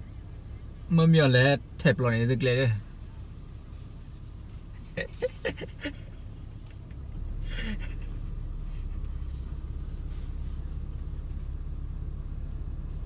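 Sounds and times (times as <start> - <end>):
car rumble from inside cabin: 0.0 - 13.0.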